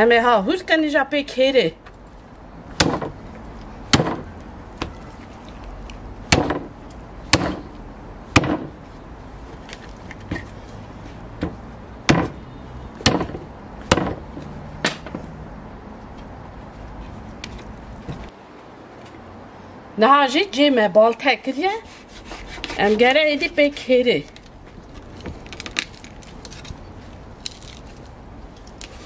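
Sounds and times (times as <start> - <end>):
hatchet chopping on wooden board: 2.8 - 3.2, 3.9 - 5.0, 6.3 - 6.7, 7.3 - 7.8, 8.4 - 8.8, 11.4 - 12.4, 13.0 - 14.2, 14.8 - 15.2.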